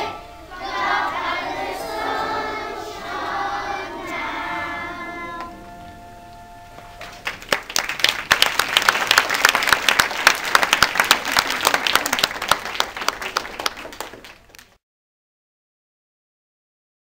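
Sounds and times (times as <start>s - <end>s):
audience applauding: 6.9s - 14.8s.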